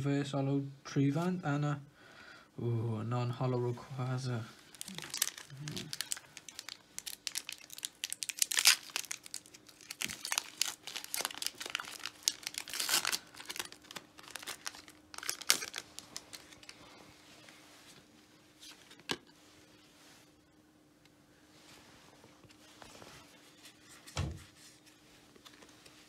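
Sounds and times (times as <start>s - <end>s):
foil wrapper crinkling and tearing: 4.6s - 16.9s.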